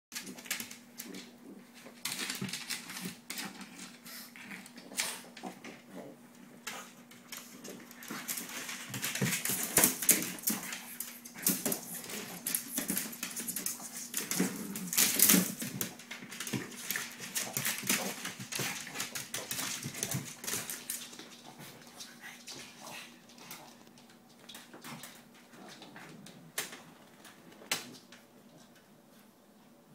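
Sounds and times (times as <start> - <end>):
dogs play-fighting: 0.2 - 29.5
claws scrabbling on wooden floor: 6.6 - 28.8.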